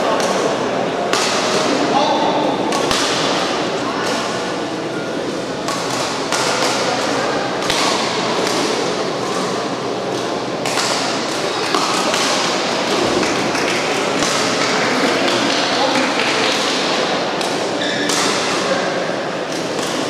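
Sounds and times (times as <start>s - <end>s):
sports hall din: 0.0s - 20.0s
rackets striking shuttlecock: 1.1s - 1.8s, 2.4s - 4.5s, 5.6s - 14.6s, 15.2s - 18.7s.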